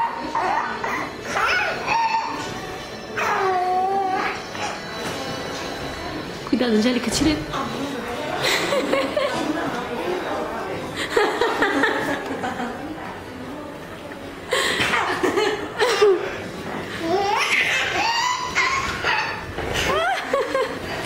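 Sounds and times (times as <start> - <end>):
baby squealing and laughing: 0.9 - 2.4, 17.2 - 20.1
adults laughing: 8.3 - 9.7, 10.8 - 13.0, 14.5 - 16.4, 19.7 - 21.0.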